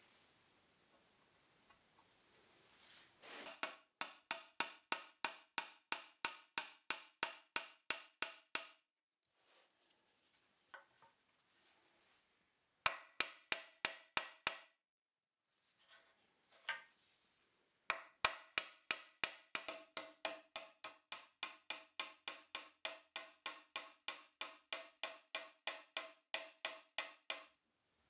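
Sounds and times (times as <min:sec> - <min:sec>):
faint handling rustle: 0:00.0 - 0:03.4, 0:09.3 - 0:12.3
hammer tapping on wood: 0:03.5 - 0:08.8, 0:12.9 - 0:14.7, 0:17.9 - 0:27.5.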